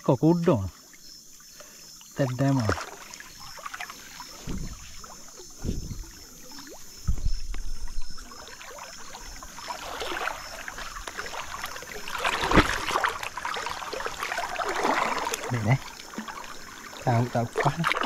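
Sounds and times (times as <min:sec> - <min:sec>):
river water splashing: 0:00.4 - 0:18.0
dull low thumps: 0:04.4 - 0:06.4, 0:07.0 - 0:08.2.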